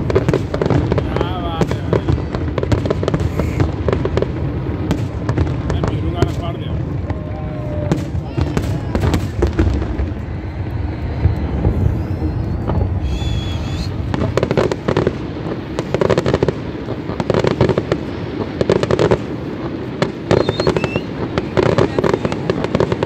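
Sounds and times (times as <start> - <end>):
rapid crackling pops: 0.0 - 23.0
high firework whistle: 3.0 - 3.8, 10.4 - 15.0, 20.2 - 23.0
fireworks shells bursting: 20.0 - 23.0.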